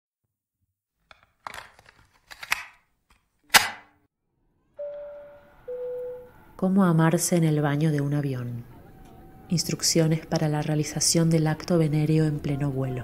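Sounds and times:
loud snap: 0:03.5 - 0:04.0
two-note cabin chime: 0:04.8 - 0:06.6.

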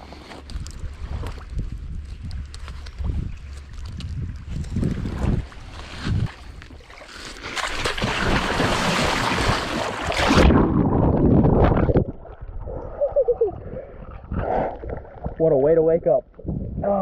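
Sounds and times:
loud splashing in water: 0:07.4 - 0:12.0
muffled underwater rumble: 0:10.4 - 0:17.0.

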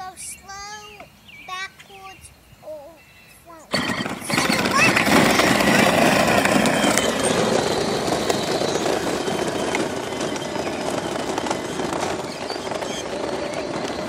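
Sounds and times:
plastic wheels rumbling on asphalt: 0:03.7 - 0:14.0.

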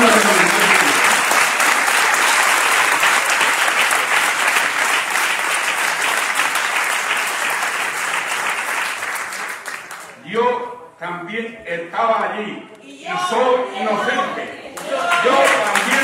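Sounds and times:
large audience applauding: 0:00.0 - 0:10.2, 0:14.7 - 0:16.0.

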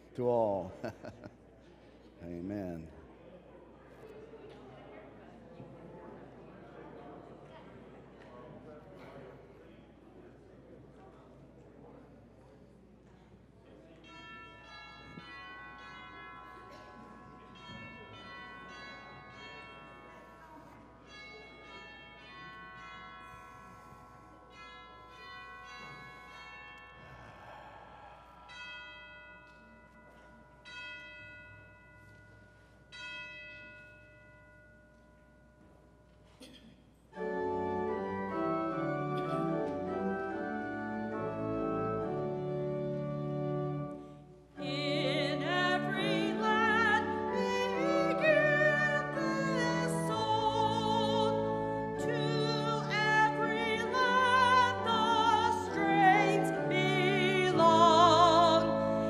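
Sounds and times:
soft bell-like notes: 0:14.0 - 0:36.4
pipe organ chords: 0:37.2 - 0:59.0
person singing with vibrato: 0:44.6 - 0:59.0.

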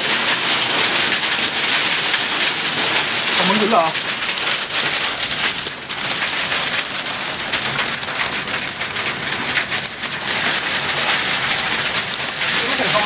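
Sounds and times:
rain and hail drumming on roof: 0:00.0 - 0:13.0.

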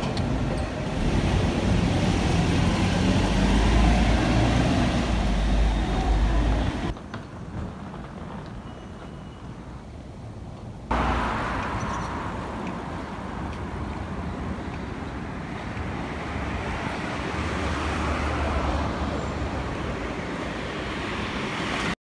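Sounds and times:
vehicles passing on road: 0:00.0 - 0:08.4, 0:10.8 - 0:22.0.

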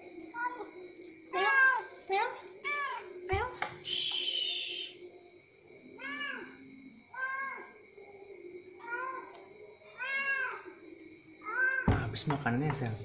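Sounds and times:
cat meowing: 0:06.0 - 0:07.8, 0:10.0 - 0:10.7, 0:11.4 - 0:12.0.

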